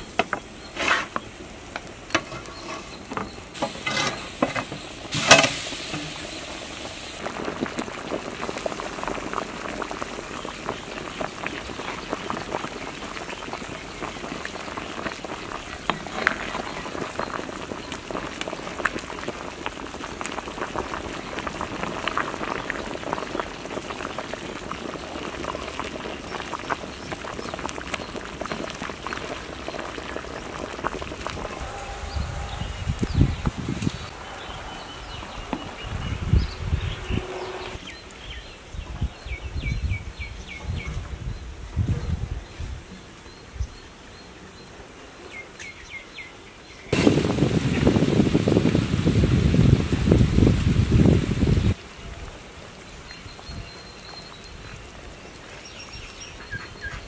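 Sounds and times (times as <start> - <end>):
gravy bubbling in a pot: 0.1 - 38.0.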